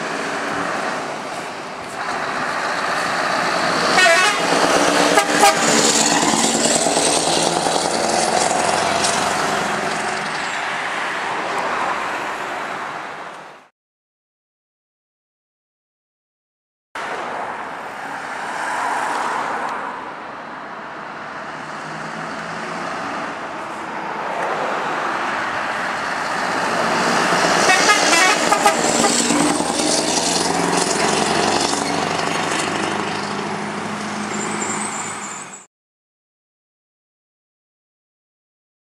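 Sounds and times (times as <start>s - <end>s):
truck engine passing: 0.0s - 12.8s, 20.7s - 35.7s.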